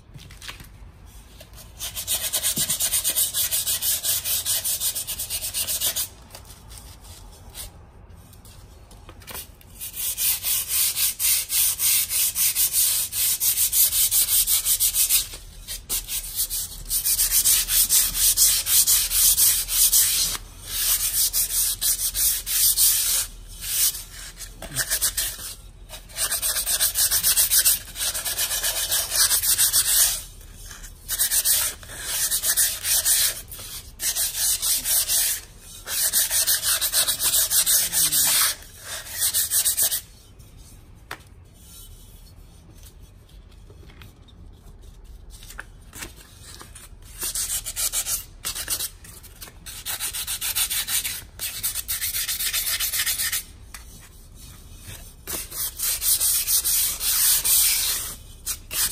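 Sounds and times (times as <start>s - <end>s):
sandpaper scratching clay pot: 9.8s - 40.6s.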